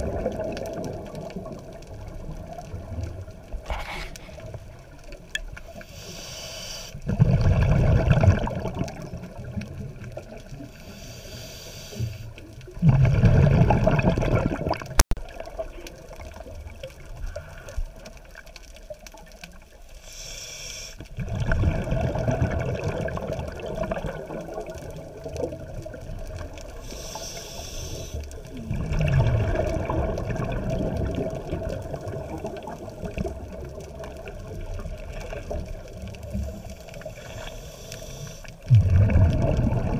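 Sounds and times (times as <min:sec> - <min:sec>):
regulator inhale hiss: 0:05.7 - 0:07.0, 0:10.7 - 0:12.4, 0:19.9 - 0:21.1, 0:26.8 - 0:28.5, 0:36.3 - 0:38.6
rumbling exhaust bubbles: 0:07.0 - 0:10.1, 0:12.7 - 0:15.0, 0:21.1 - 0:26.8, 0:28.4 - 0:36.7, 0:38.6 - 0:39.9.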